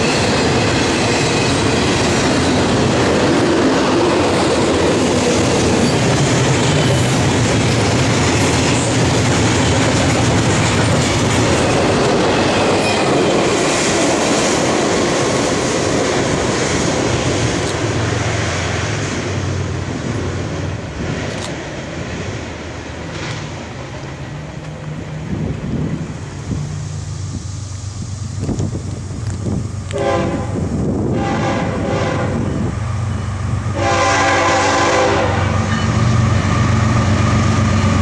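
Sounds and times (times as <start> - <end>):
clickety-clack over rail joints: 0.0 - 26.6, 28.3 - 31.3
freight train wheels rumbling: 0.0 - 38.0.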